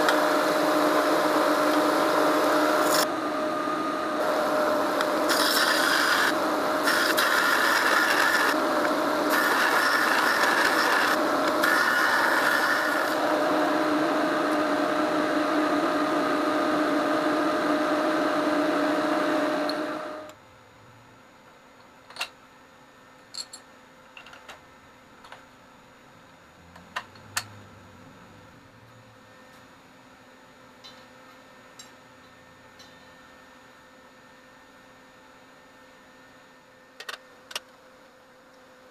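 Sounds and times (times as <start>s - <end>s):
belt sander humming: 0.0s - 20.3s
steel grinding hiss: 5.1s - 8.6s, 9.2s - 13.2s.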